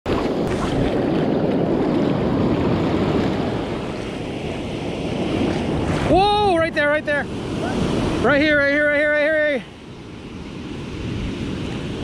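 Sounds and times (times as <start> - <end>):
wind on microphone: 0.1 - 8.9, 9.7 - 12.0
surf rushing and foaming: 0.1 - 12.0.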